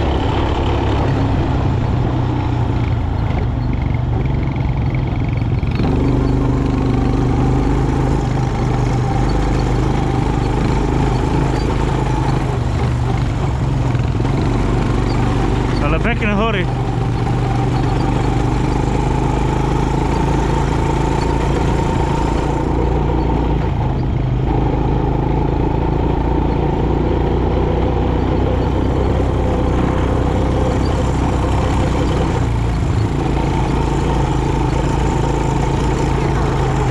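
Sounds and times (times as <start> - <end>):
quad bike engine running: 0.0 - 36.9.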